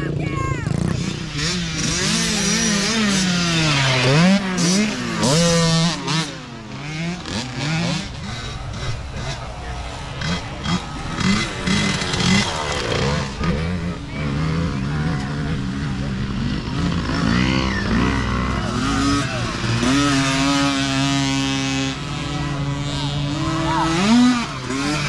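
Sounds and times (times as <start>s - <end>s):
dirt bike engines revving: 0.0s - 25.0s.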